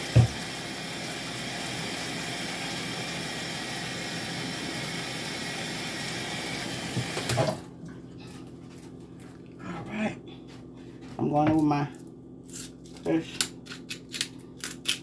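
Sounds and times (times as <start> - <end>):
tap running into a sink: 0.0 - 0.6, 6.8 - 7.6.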